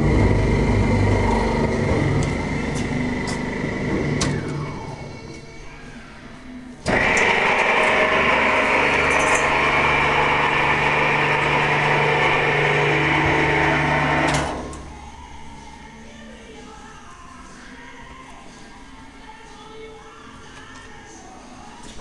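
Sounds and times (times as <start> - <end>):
mixer motor hum and whine: 0.0 - 15.6.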